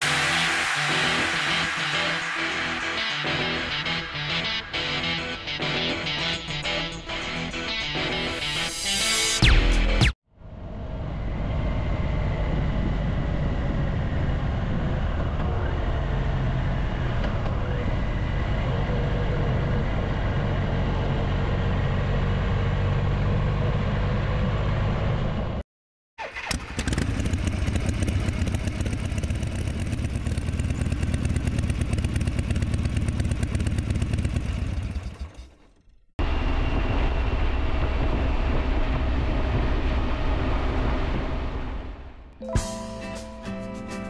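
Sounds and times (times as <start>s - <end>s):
motorcycle engine running: 26.6s - 40.4s.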